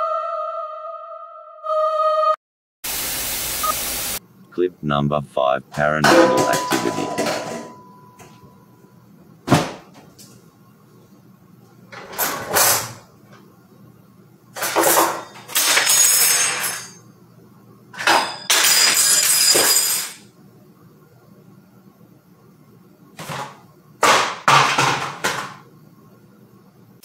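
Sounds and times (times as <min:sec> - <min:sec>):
cabinets clattering and banging: 0:06.1 - 0:07.8, 0:09.4 - 0:10.1, 0:11.9 - 0:13.1, 0:14.6 - 0:17.0, 0:18.0 - 0:20.2, 0:23.2 - 0:25.6.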